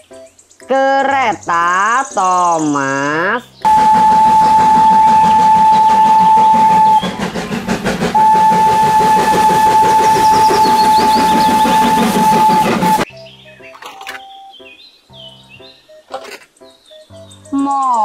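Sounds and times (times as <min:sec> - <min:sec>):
steam locomotive whistle: 0:03.6 - 0:13.1
train running along track: 0:03.6 - 0:13.1.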